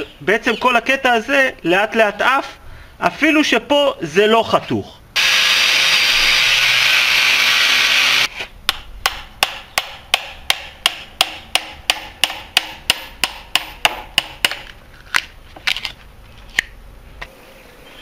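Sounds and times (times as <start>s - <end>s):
angle grinder cutting wood: 5.2s - 8.5s
hammer striking steel chisel: 8.7s - 14.7s.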